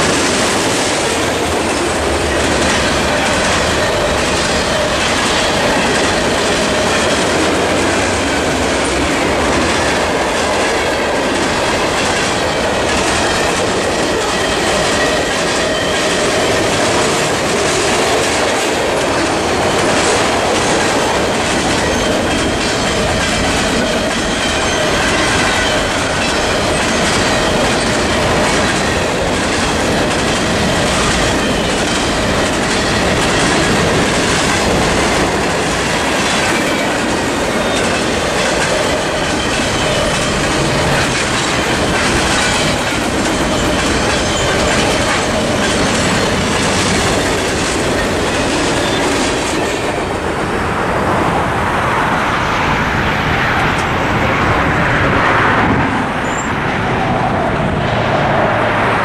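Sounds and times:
train wheels clacking on rail joints: 0:00.0 - 0:51.2
freight train rumbling past: 0:00.0 - 0:59.0
crossing electronic bell ringing: 0:19.2 - 0:50.0.

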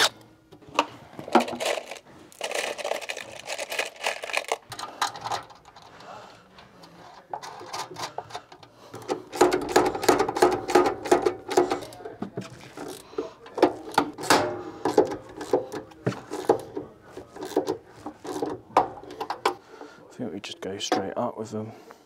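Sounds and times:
clicks and knocks on steel box: 0:07.7 - 0:12.6, 0:13.5 - 0:16.8.

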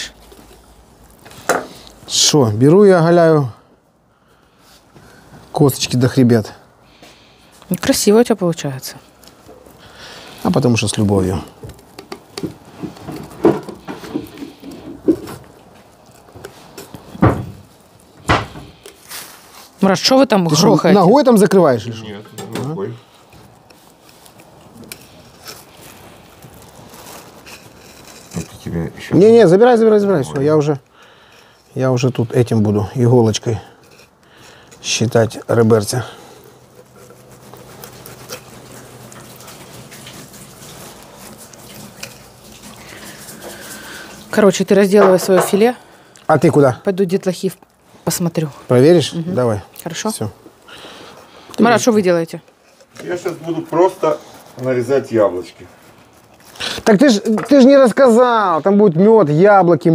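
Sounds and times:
knocks and bangs: 0:17.2 - 0:17.6
water running and splashing: 0:36.7 - 0:45.8.

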